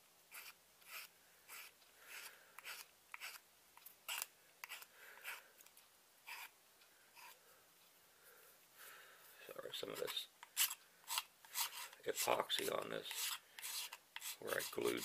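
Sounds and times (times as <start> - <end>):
hand file scraping: 0.3 - 3.4, 4.1 - 5.5, 6.3 - 6.5, 9.9 - 15.0.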